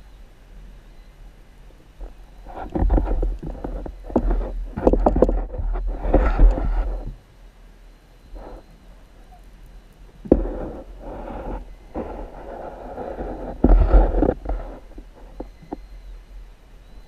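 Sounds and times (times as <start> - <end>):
muffled underwater rushing and knocking: 2.0 - 7.2, 10.2 - 15.9.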